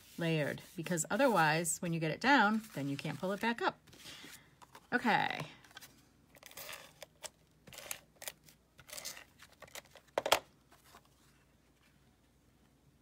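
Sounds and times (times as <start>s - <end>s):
paper rustling: 2.4s - 4.9s.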